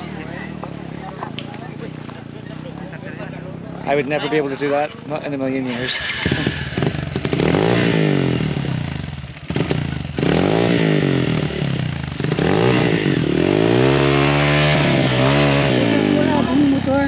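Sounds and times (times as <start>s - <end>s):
dirt bike engine revving: 3.6s - 17.0s.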